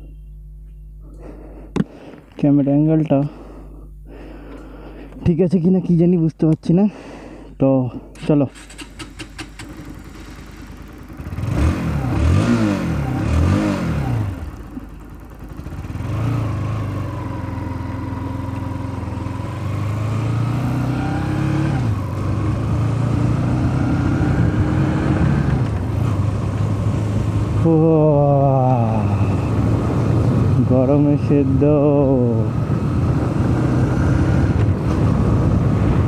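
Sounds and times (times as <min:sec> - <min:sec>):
motorcycle engine revving: 0:08.2 - 0:36.0.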